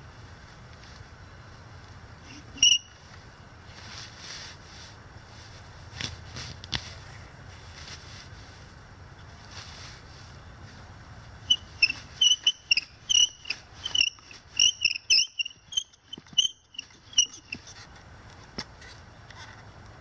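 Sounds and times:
bow drill spindle squeaking: 2.3s - 2.9s, 11.5s - 17.8s.

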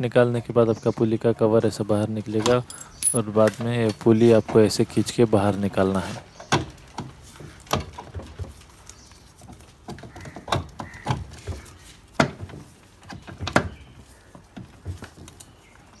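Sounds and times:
metal clicks and knocks: 2.3s - 4.9s.

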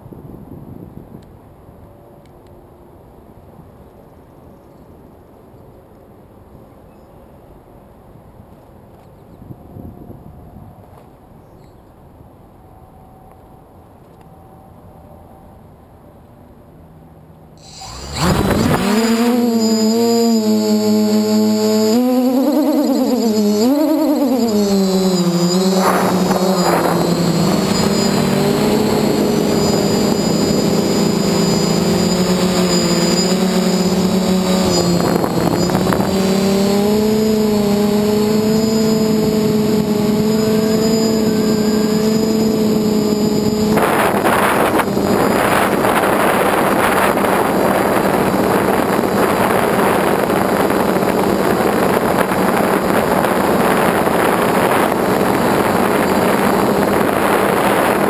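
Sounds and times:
drone propellers humming: 17.6s - 58.0s.

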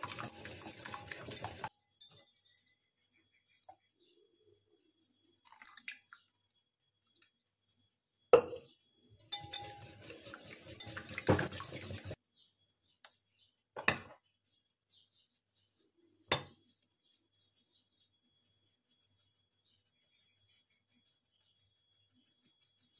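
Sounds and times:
whisk beating batter in bowl: 0.0s - 1.7s, 9.3s - 12.2s, 18.7s - 22.9s.

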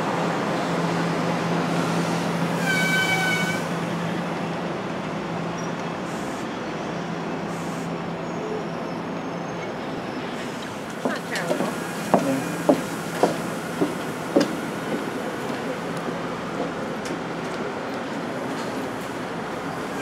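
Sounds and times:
train wheels rumbling on rails: 0.0s - 20.0s
high squeal: 2.6s - 3.7s.

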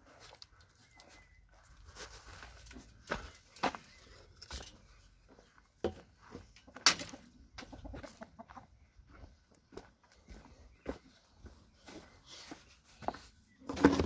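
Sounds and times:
hens clucking: 6.4s - 9.6s.

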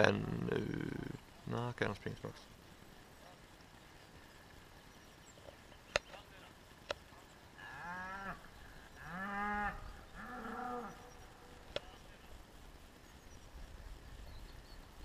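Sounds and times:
cattle mooing: 7.6s - 8.4s, 9.0s - 11.2s.

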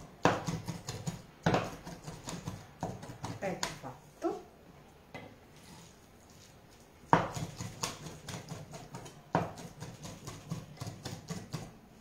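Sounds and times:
knife chopping on wooden board: 0.1s - 3.8s, 7.1s - 11.8s.

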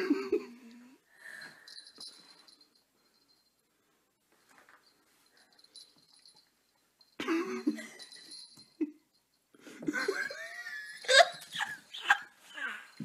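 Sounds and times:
person laughing: 9.8s - 12.3s.

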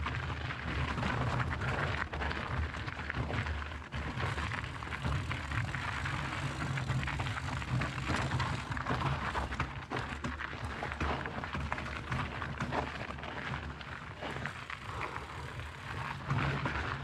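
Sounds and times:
bike rattling and knocking: 0.7s - 17.0s.

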